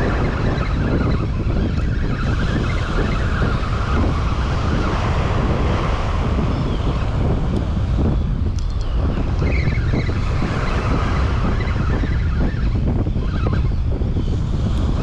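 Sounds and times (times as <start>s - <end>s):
wind buffeting microphone: 0.0s - 15.0s
surf washing onto beach: 2.8s - 8.4s.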